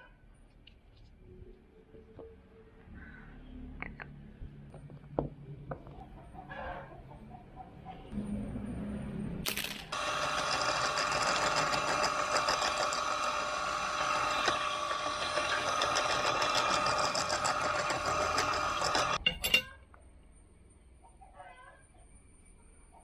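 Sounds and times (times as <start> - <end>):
drill press whining: 9.9 - 19.2.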